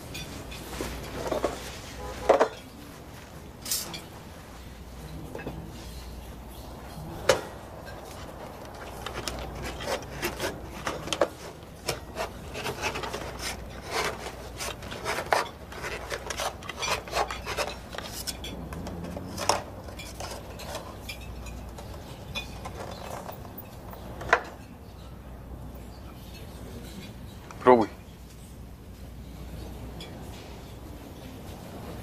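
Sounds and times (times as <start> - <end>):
cutlery scraping a tin: 7.2 - 24.6.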